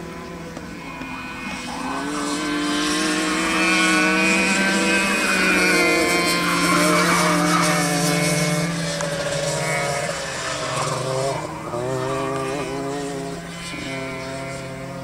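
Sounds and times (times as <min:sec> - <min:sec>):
racing kart engines: 0:00.0 - 0:15.0.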